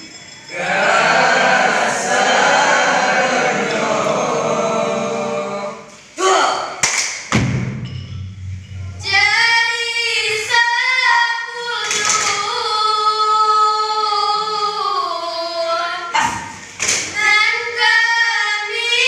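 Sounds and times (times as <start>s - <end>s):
hand slaps: 6.8s - 7.6s.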